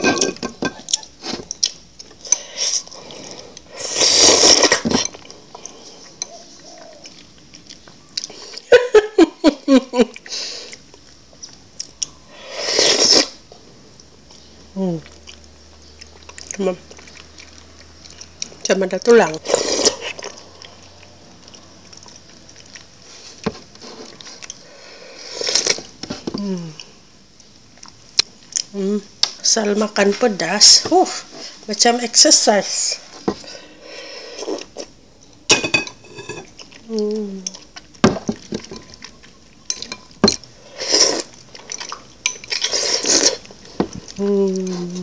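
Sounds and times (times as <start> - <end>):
person slurping soup: 2.3 - 5.1, 12.4 - 13.4, 33.9 - 34.8, 40.6 - 41.9, 42.5 - 43.4.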